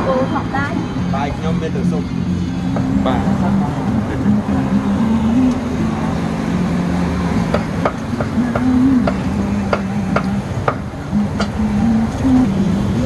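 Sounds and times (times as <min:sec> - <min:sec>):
street traffic hum: 0:00.0 - 0:13.0.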